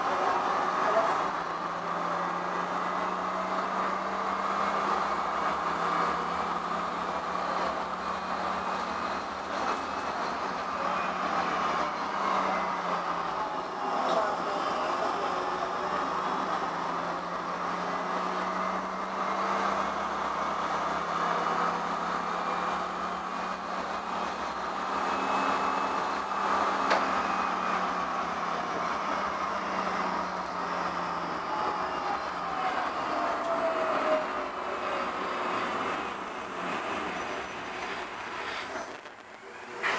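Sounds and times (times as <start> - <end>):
falling whine of tram slowing: 0.0 - 39.9
tram rolling on rails: 0.0 - 39.9.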